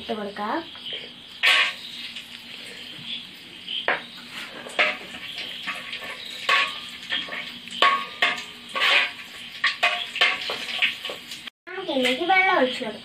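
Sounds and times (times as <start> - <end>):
metal spoon scraping a pot: 1.4 - 2.9, 3.9 - 11.2.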